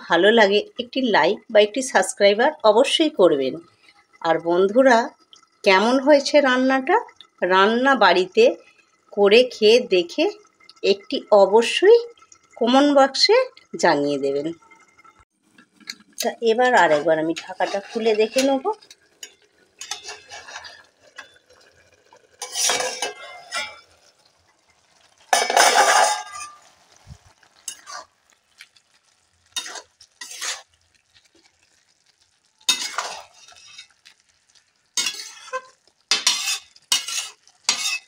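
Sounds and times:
metal spatula scraping a pan: 16.8s - 24.1s, 25.3s - 38.0s
steel lid clinking on pan: 25.3s - 26.7s.

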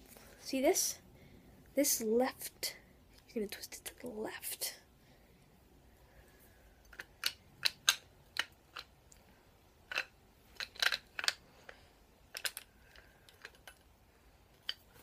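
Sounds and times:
metal stand parts clicking: 9.9s - 11.4s, 12.3s - 13.9s.

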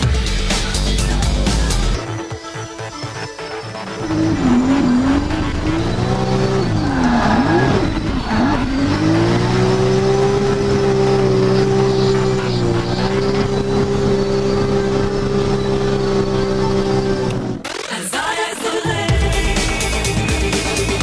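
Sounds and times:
car engine revving from inside cabin: 4.0s - 17.6s.

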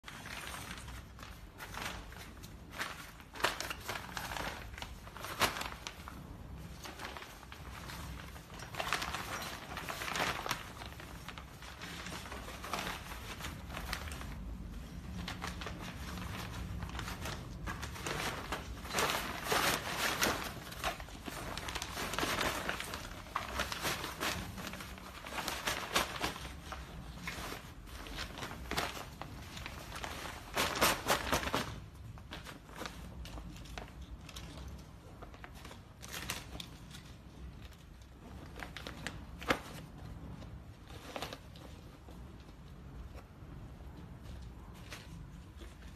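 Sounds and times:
fabric rustling and crinkling: 0.0s - 45.9s.

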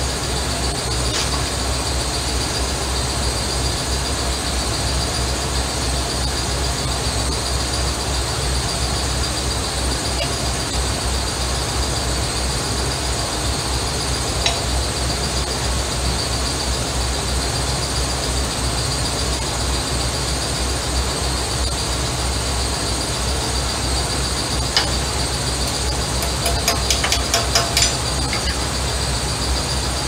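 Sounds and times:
high-pitched whine: 0.0s - 30.0s
wrench clinking on metal: 14.4s - 14.9s, 25.7s - 28.7s.

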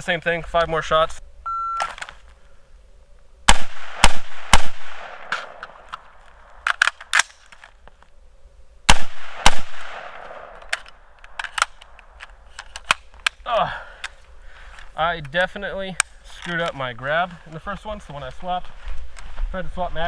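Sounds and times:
rifle shots with echo: 3.5s - 5.8s, 8.9s - 10.8s
magazine change clicks and rattles: 5.2s - 8.0s, 9.8s - 13.4s.

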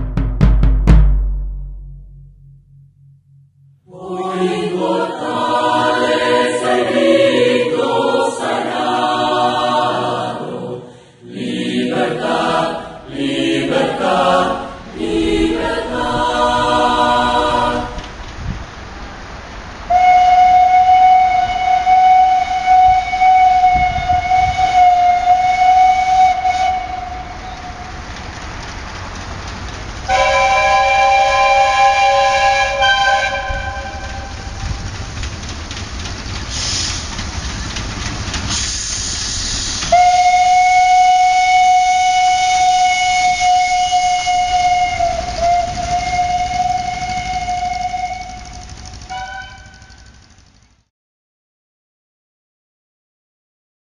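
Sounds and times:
steam hiss: 4.0s - 50.2s
train whistle blasts: 19.9s - 28.0s, 30.1s - 34.6s, 38.5s - 50.1s
train horn chord: 19.9s - 28.1s, 30.1s - 34.8s, 39.9s - 50.2s.

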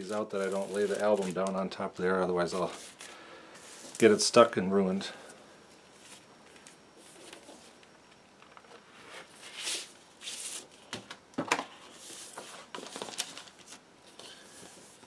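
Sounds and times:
plastic sleeve rustling: 0.0s - 4.4s, 11.8s - 15.0s.

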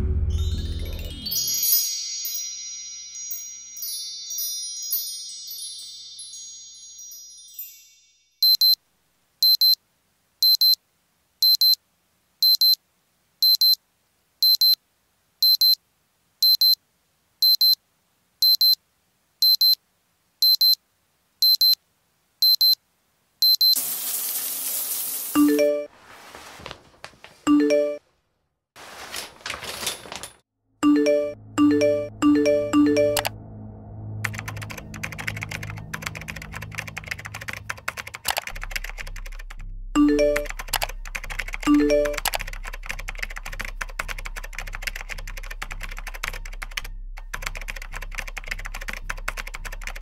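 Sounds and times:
chime-like ringing tones: 0.2s - 8.4s, 30.8s - 34.6s
electronic alarm beeping: 8.4s - 8.8s, 23.4s - 23.8s.

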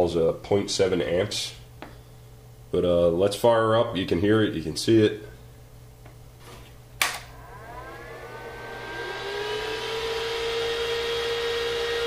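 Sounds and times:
cooling fan whirring: 0.0s - 12.0s
power switch click: 7.0s - 7.3s.

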